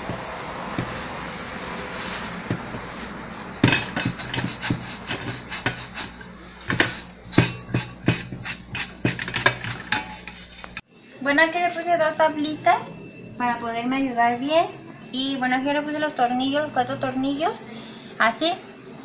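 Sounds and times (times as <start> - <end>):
rubbing and wiping juicer base: 0.0 - 10.8.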